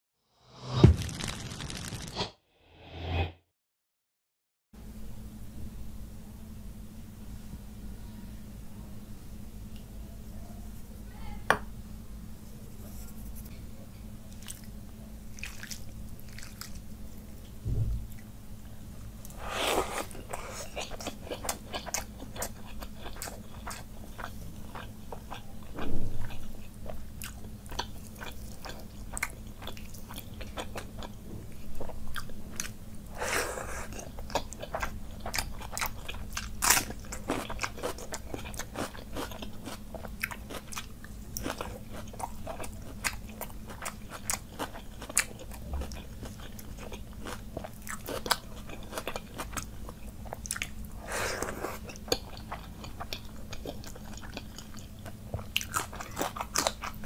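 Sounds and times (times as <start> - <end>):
faint steady hum: 4.8 - 57.0
wet chewing: 14.3 - 16.9, 19.3 - 25.5, 27.2 - 57.0
raw onion crunching: 14.3 - 17.5, 19.2 - 57.0.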